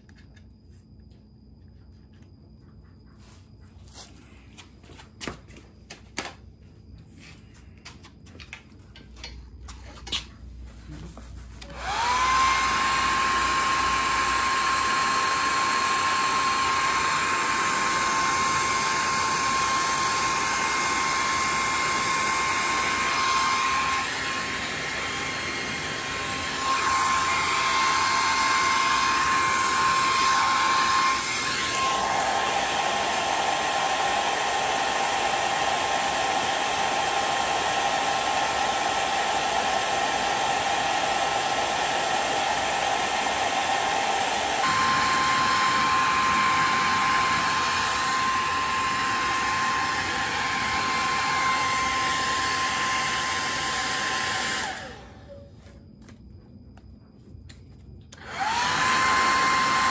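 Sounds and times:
heat gun fan whine: 3.2 - 56.8, 57.4 - 59.9
rush of hot air: 11.6 - 54.8.

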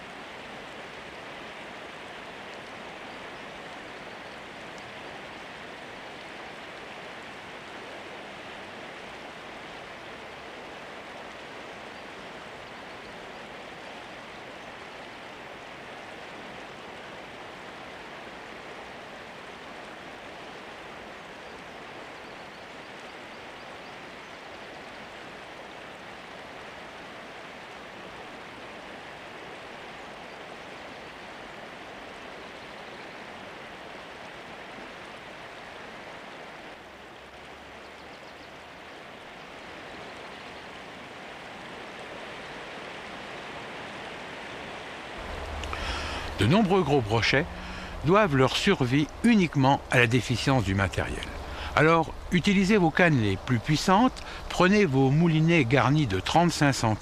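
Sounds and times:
steady rushing noise: 45.0 - 57.0.

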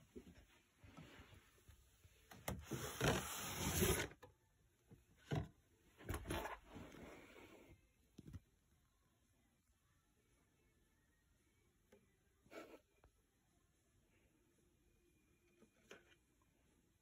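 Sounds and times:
cardboard box rustling and scraping: 2.6 - 4.1.

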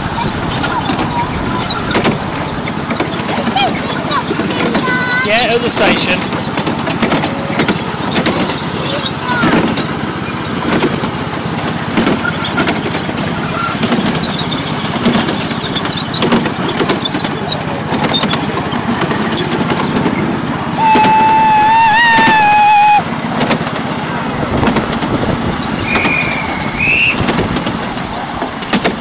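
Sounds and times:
track clicks: 0.0 - 22.5, 23.3 - 29.0
train carriages rattling: 0.0 - 29.0
locomotive horn: 20.7 - 23.1.

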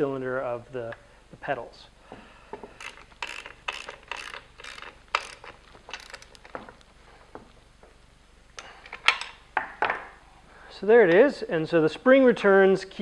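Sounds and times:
ratcheting wrench clicking: 2.8 - 6.6.

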